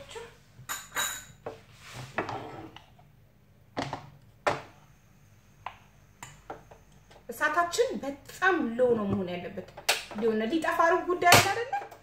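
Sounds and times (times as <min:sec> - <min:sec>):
wooden spoon scraping in pot: 0:01.5 - 0:03.0.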